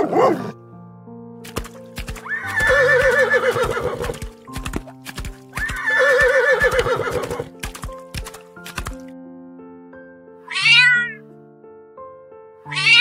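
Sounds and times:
background music: 0:00.0 - 0:13.0
horse whinnying: 0:02.2 - 0:04.2, 0:05.6 - 0:07.5, 0:10.5 - 0:11.2, 0:12.7 - 0:13.0.

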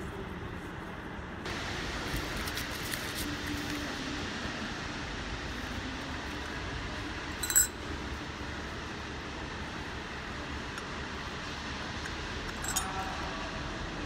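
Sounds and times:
steady background hiss: 0:00.0 - 0:14.0
sharp metallic clink: 0:07.4 - 0:07.8, 0:12.5 - 0:13.1.

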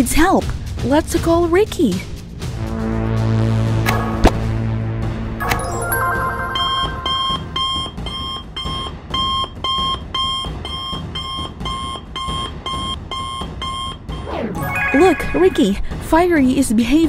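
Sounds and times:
short sound effect: 0:03.9 - 0:07.9
electronic beeping: 0:14.5 - 0:15.8.

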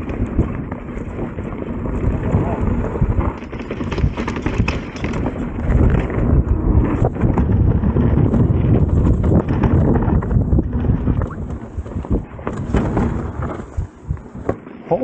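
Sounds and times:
bike knocks and rattles: 0:00.0 - 0:14.7
tyres rumbling over rocks: 0:00.0 - 0:14.7
wind buffeting microphone: 0:00.0 - 0:15.0.

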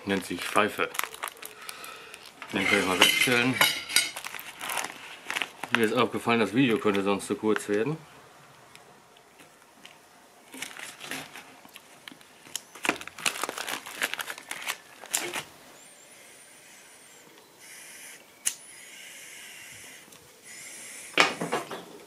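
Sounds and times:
foil pouch crinkling: 0:00.0 - 0:07.9, 0:09.2 - 0:15.5
crackling: 0:00.0 - 0:18.7.

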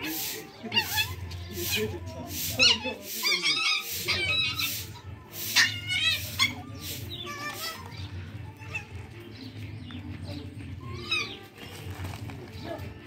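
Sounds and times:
puppies yipping and whimpering: 0:00.0 - 0:09.2, 0:10.8 - 0:11.6.

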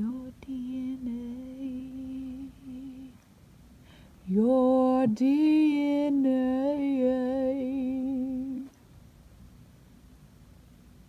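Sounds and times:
woman humming slow tune: 0:00.0 - 0:03.2, 0:04.3 - 0:08.7.

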